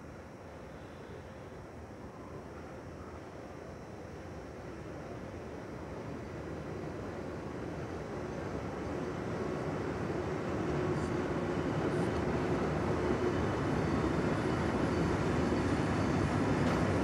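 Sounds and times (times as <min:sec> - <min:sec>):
faint steady tone: 0:00.0 - 0:17.0
train wheels rumbling on rail: 0:06.8 - 0:17.0.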